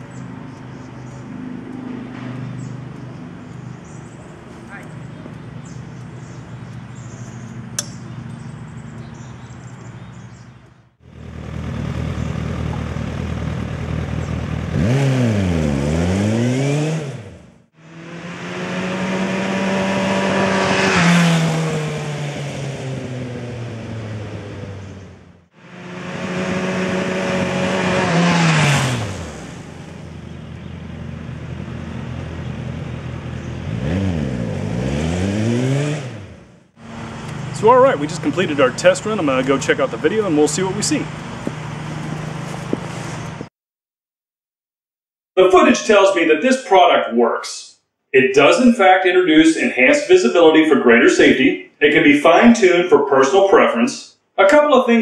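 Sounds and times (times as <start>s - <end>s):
motorcycle engine idling: 0.0s - 15.7s, 22.8s - 28.2s, 28.8s - 33.8s, 36.3s - 43.5s
motorcycle revving and riding past: 0.0s - 43.5s.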